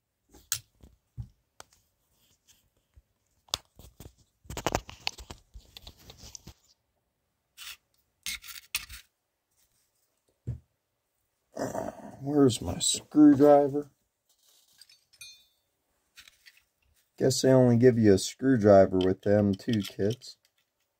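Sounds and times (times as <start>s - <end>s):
rubbing and scraping: 12.6s - 15.1s
rustling: 12.7s - 15.4s.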